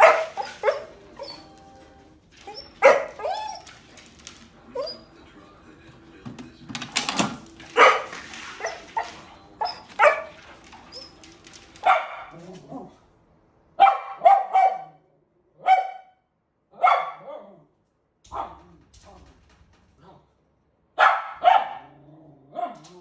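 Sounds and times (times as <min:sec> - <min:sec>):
dogs barking: 0:00.0 - 0:01.6, 0:02.3 - 0:05.2, 0:07.4 - 0:12.9, 0:13.8 - 0:15.0, 0:15.6 - 0:17.6, 0:21.0 - 0:23.0.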